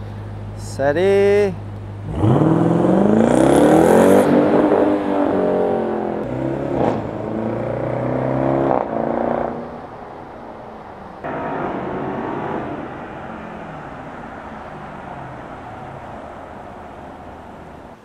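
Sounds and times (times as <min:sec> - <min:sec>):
car engine accelerating: 0:01.7 - 0:09.9, 0:11.2 - 0:18.0.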